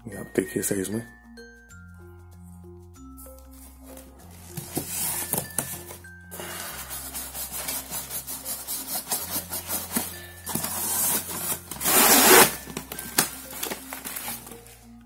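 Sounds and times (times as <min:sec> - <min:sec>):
background music: 0:00.0 - 0:15.0
cardboard boxes rustling: 0:03.5 - 0:14.8.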